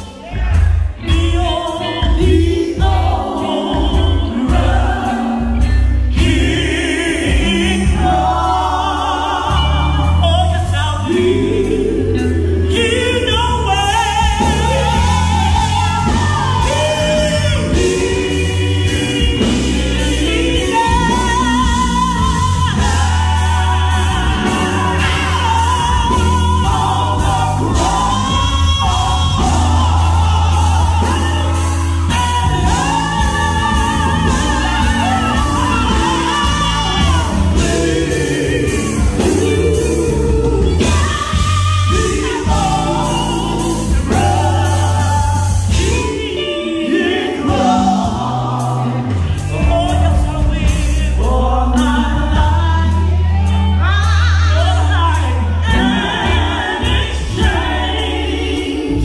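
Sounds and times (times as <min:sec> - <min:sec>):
bass guitar: 0:00.0 - 0:59.0
lead voice singing with vibrato: 0:00.0 - 0:59.0
women singing gospel: 0:00.0 - 0:59.0
electric guitar: 0:09.5 - 0:59.0.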